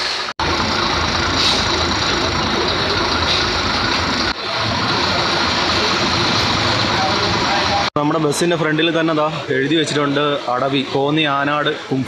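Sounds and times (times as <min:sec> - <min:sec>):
bus engine running: 0:00.0 - 0:08.0.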